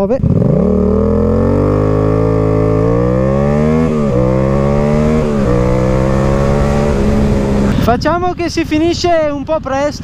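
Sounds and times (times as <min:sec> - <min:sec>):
motorcycle engine accelerating: 0:00.0 - 0:10.0.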